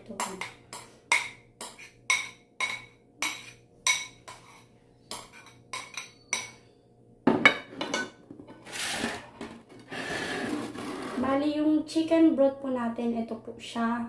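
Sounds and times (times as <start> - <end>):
spoon clinking against bowl: 0.2 - 6.6
spoon scraping and knocking: 0.4 - 6.6, 7.5 - 11.2.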